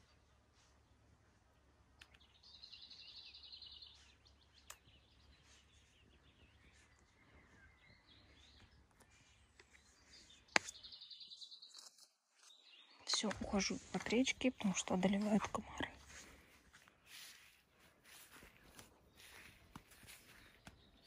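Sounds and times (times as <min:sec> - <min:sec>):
songbird trilling: 0:02.0 - 0:08.8, 0:09.7 - 0:14.7.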